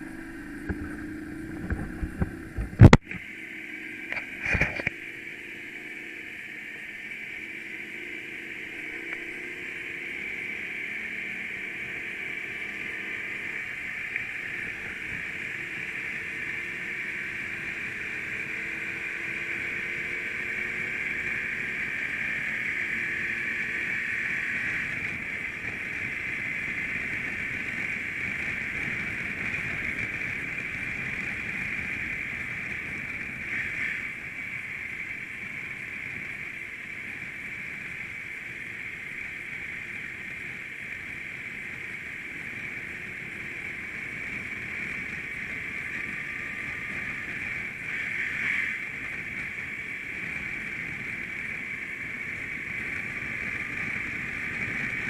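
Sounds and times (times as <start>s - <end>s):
wind noise: 0.0s - 3.3s, 4.0s - 5.1s, 20.6s - 55.0s
motorcycle engine: 0.0s - 55.0s.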